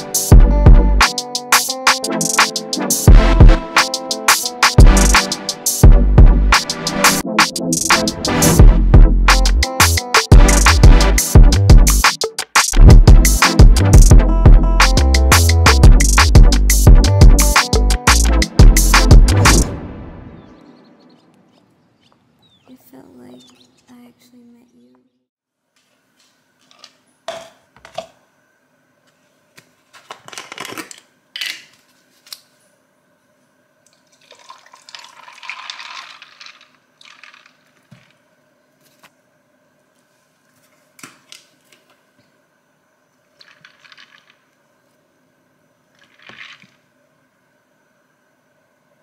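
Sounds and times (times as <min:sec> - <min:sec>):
liquid pouring into plastic cup: 0:33.9 - 0:38.2, 0:43.4 - 0:44.6, 0:45.9 - 0:46.8.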